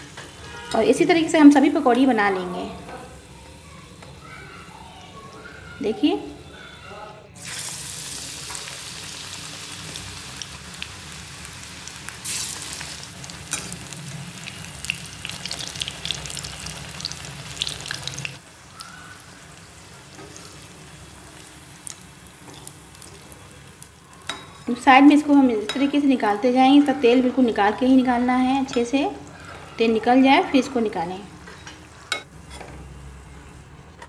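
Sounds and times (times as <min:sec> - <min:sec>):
leaves deep-frying in hot oil: 0:07.4 - 0:32.1.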